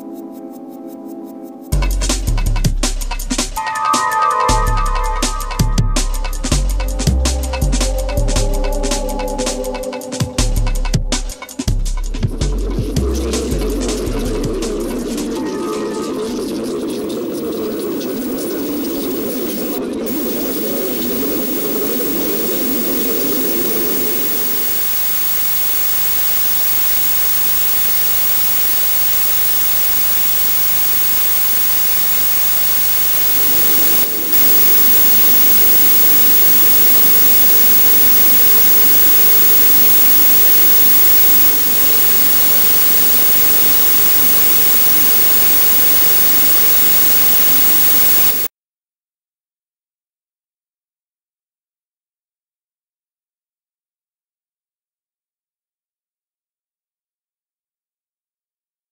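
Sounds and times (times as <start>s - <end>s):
static-like hiss: 17.0s - 48.5s
coarse low noise layer: 17.1s - 48.5s.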